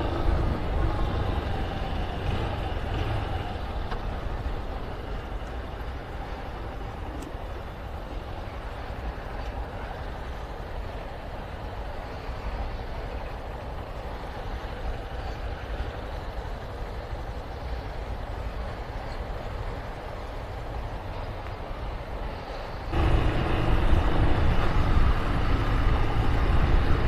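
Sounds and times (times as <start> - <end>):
motorcycle running: 0.0 - 4.8, 22.9 - 27.0
wind rushing on microphone: 0.0 - 27.0.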